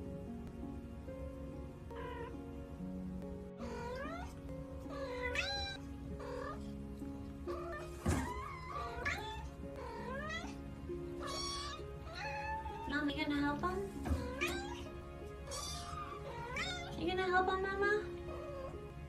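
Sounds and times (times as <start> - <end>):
background music: 0.0 - 19.0
kittens meowing: 1.9 - 2.4, 3.6 - 6.8, 7.4 - 10.6, 11.2 - 13.2, 14.0 - 17.0.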